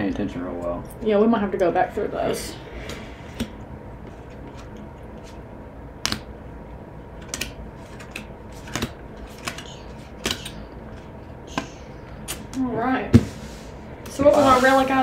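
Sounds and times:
cards being flipped through: 0:07.2 - 0:12.6.

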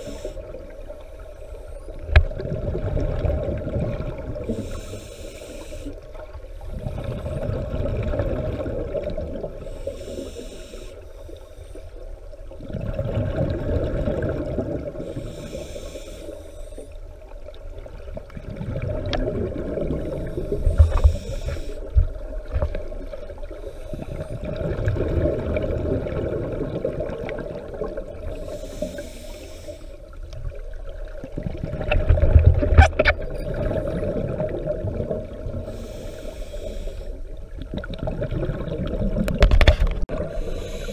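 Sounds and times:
diver inhaling through regulator: 0:00.0 - 0:00.6, 0:04.4 - 0:06.1, 0:09.6 - 0:12.0, 0:15.0 - 0:17.0, 0:20.1 - 0:22.0, 0:28.3 - 0:30.2, 0:35.6 - 0:37.4, 0:40.2 - 0:40.9
exhaled bubbles rushing: 0:02.1 - 0:04.5, 0:06.7 - 0:09.6, 0:12.6 - 0:15.1, 0:18.0 - 0:21.0, 0:24.3 - 0:28.4, 0:30.5 - 0:35.7, 0:37.5 - 0:40.5.

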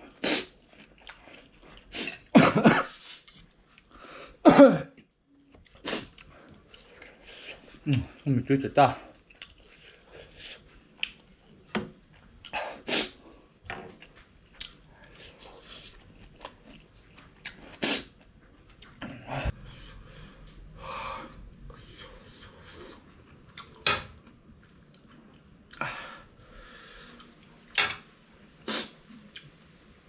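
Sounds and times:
chewing: 0:00.1 - 0:02.3, 0:09.0 - 0:19.6, 0:23.0 - 0:25.8.

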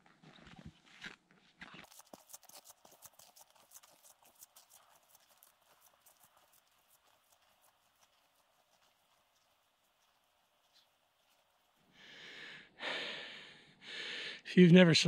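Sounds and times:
snowshoe footsteps crunching snow: 0:00.0 - 0:11.9.

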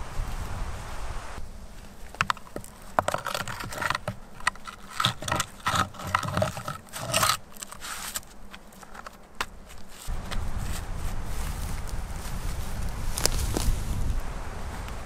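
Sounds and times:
short scraping strokes: 0:02.2 - 0:08.9.

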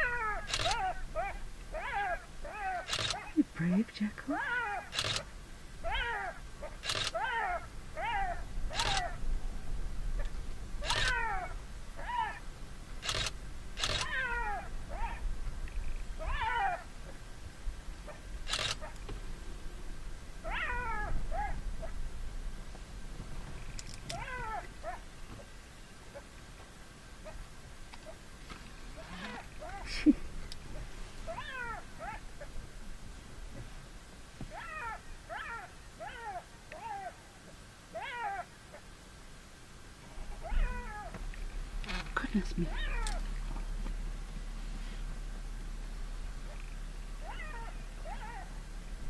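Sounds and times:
jackal yelping calls: 0:00.0 - 0:03.4, 0:04.3 - 0:09.2, 0:10.2 - 0:12.4, 0:13.0 - 0:15.2, 0:16.2 - 0:16.9, 0:29.0 - 0:32.5, 0:40.4 - 0:41.2, 0:46.4 - 0:48.6.

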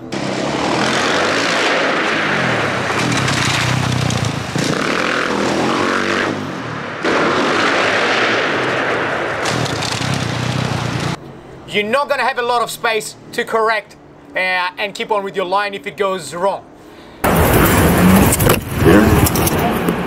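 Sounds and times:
dirt bike engine revving: 0:00.0 - 0:06.8, 0:09.4 - 0:11.2, 0:17.2 - 0:19.7.

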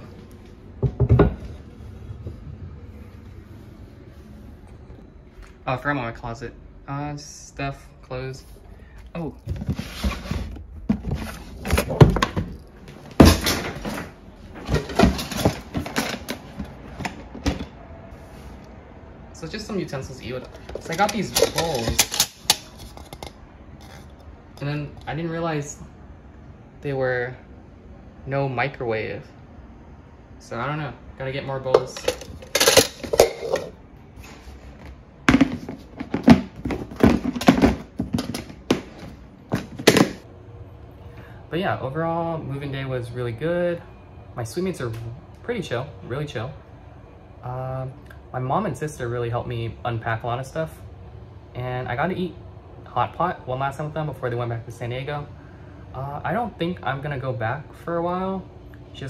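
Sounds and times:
plastic bins knocking and scraping: 0:09.4 - 0:17.8, 0:20.4 - 0:22.2, 0:35.2 - 0:40.2
plastic bin knocking and clattering: 0:35.3 - 0:40.2.

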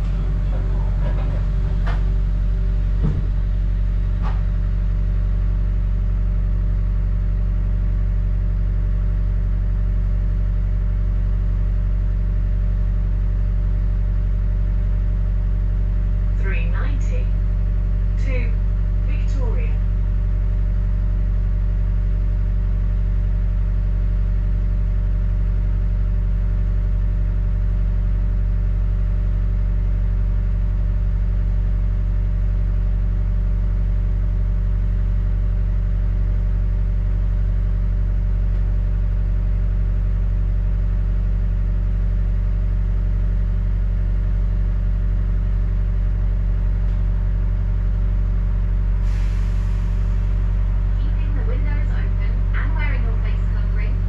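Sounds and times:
bus engine rumble: 0:00.0 - 0:05.7, 0:45.5 - 0:54.0.

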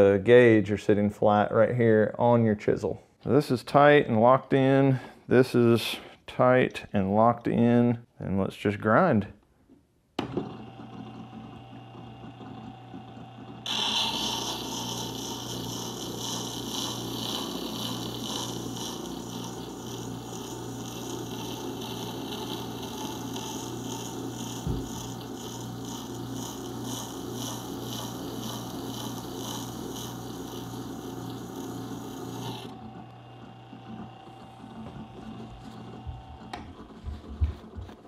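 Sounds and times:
sharpener motor hum: 0:10.8 - 0:36.7
chisel grinding on sharpening stone: 0:13.7 - 0:32.7.

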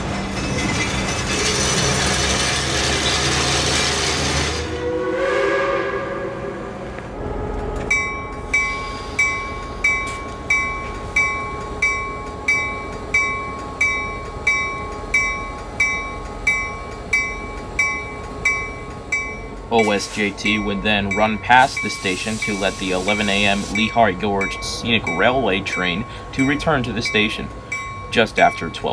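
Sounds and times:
train whistle: 0:04.0 - 0:08.0
locomotive bell ringing: 0:04.6 - 0:28.9.

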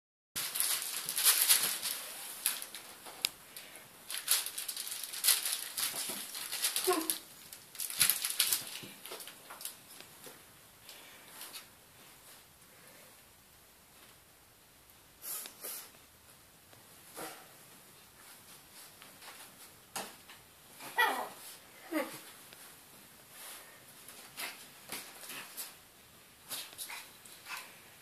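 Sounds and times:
pets scuffling and rustling: 0:00.4 - 0:10.4, 0:17.0 - 0:25.8.

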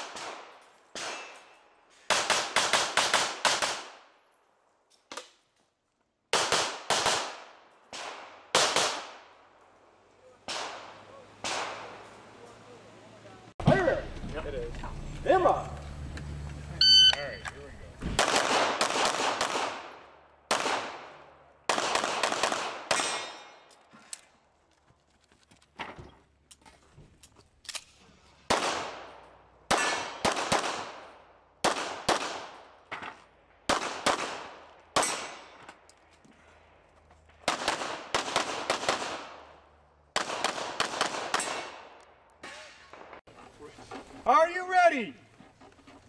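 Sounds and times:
pistol shots echoing: 0:00.0 - 0:04.0, 0:06.3 - 0:09.4, 0:10.4 - 0:12.0, 0:18.2 - 0:23.7, 0:28.5 - 0:32.7, 0:33.6 - 0:35.6, 0:37.4 - 0:42.0.

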